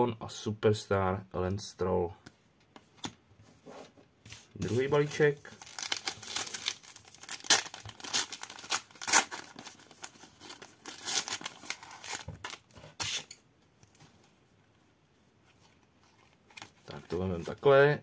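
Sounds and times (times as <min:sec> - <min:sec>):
wrapper tearing and crinkling: 0:05.0 - 0:13.3.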